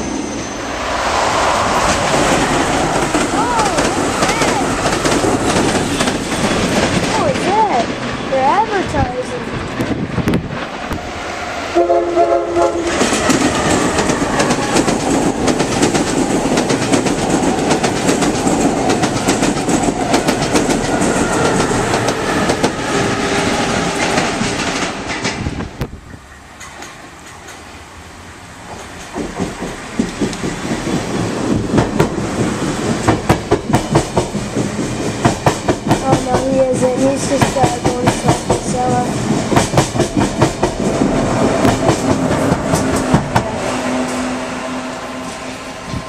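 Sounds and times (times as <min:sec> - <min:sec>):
rush of passing train: 0:00.0 - 0:46.0
train wheels clickety-clack: 0:01.7 - 0:11.0, 0:12.6 - 0:27.7, 0:28.6 - 0:44.3
train horn chord: 0:11.7 - 0:13.1, 0:43.4 - 0:46.0.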